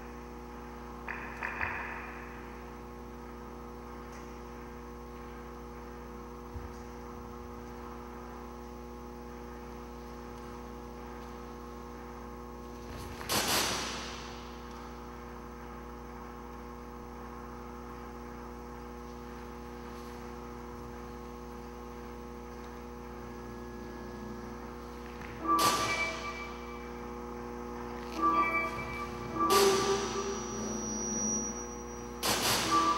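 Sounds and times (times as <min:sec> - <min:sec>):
electrical hum: 0:00.0 - 0:32.9
ringing sampled sound: 0:23.4 - 0:32.9.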